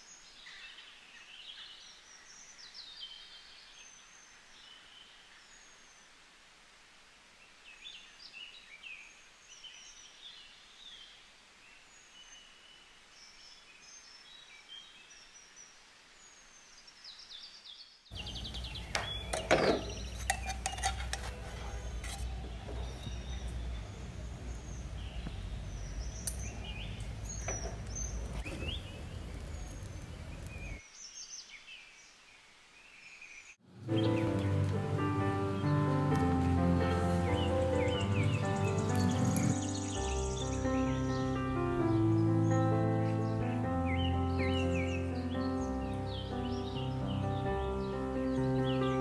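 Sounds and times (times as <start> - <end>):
birds chirping faintly: 7.0 - 49.0
metal tongs clinking on pan: 19.3 - 21.4.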